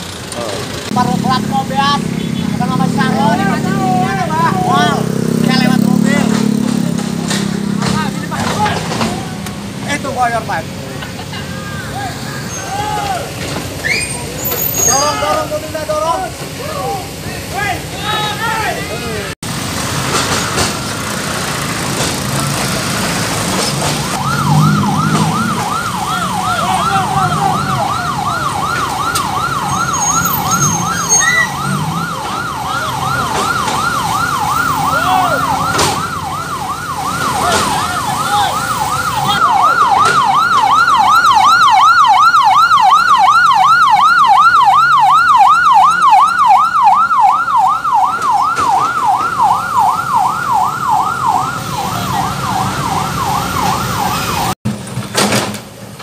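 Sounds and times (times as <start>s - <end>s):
vehicle engines rumbling: 0.0s - 56.0s
ambulance siren yelping: 0.9s - 10.3s, 23.8s - 54.6s.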